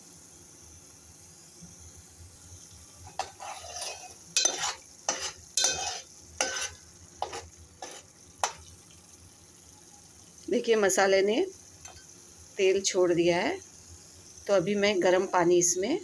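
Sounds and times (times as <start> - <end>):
spoon scraping metal pot: 3.1 - 8.6.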